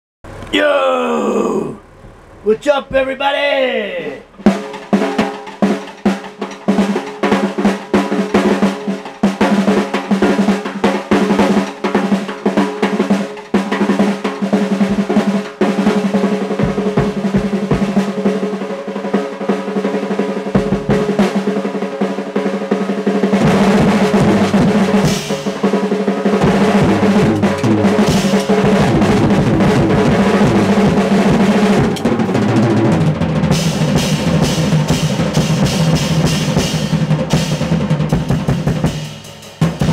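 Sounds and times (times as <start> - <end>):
snare and tom rolls: 2.5 - 39.9
cymbals: 3.8 - 39.9
bass drum: 14.8 - 15.5, 16.6 - 18.0, 23.4 - 25.6, 26.4 - 39.0.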